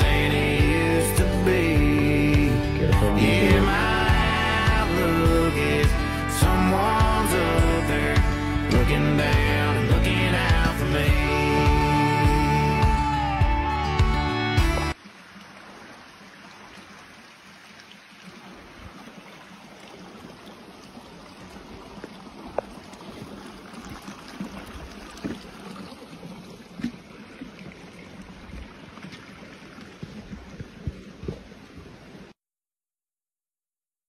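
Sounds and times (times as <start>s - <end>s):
music track: 0.0s - 15.0s
creek trickling: 0.0s - 32.4s
footsteps on a trail: 27.6s - 32.2s.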